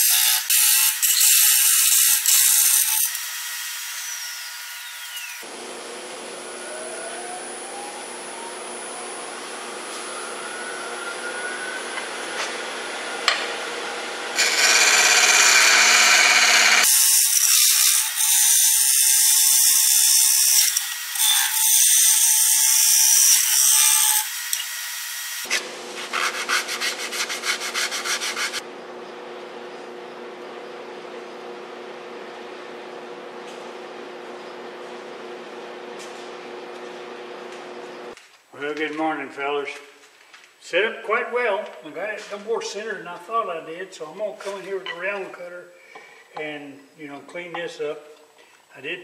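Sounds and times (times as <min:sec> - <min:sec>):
wood lathe motor whine: 0:00.1 - 0:26.1
tool scraping spinning wood: 0:13.8 - 0:18.2, 0:25.4 - 0:28.6.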